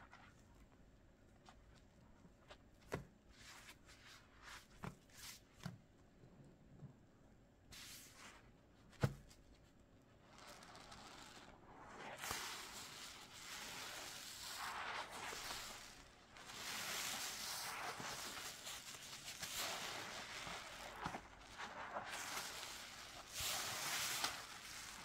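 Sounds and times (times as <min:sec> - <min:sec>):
scrubbing through soapy lather: 0:10.3 - 0:25.0.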